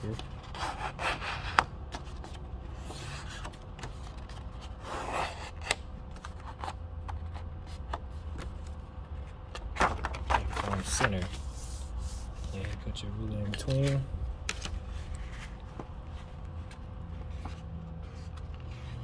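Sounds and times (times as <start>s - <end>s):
paper rustling: 6.2s - 19.0s.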